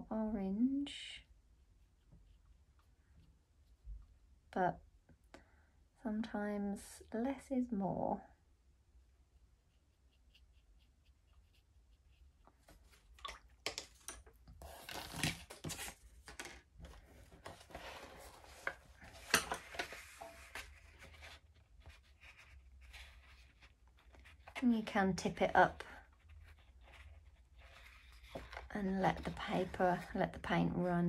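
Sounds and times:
paper rustling and sliding: 0:14.6 - 0:24.6.

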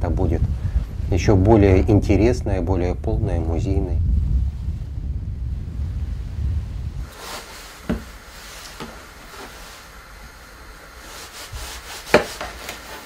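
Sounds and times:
knife knocking on cutting board: 0:07.9 - 0:08.1
knife sawing through meat: 0:11.2 - 0:13.0.

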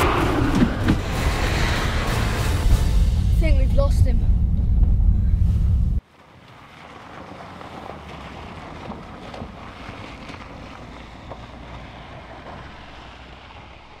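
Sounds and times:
car engine rumble: 0:00.0 - 0:14.0
tyres hissing on wet road: 0:06.1 - 0:14.0.

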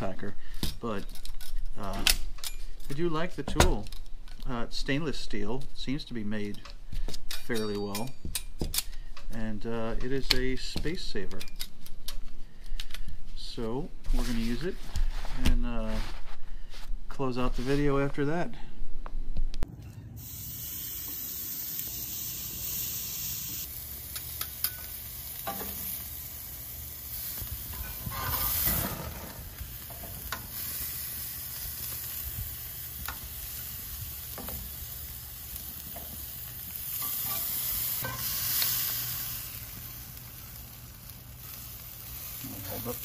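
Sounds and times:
steaks sizzling on grill: 0:20.2 - 0:43.0.

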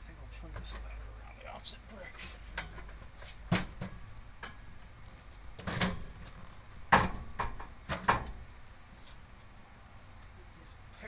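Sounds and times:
ladder knocking and scraping: 0:05.6 - 0:08.4.

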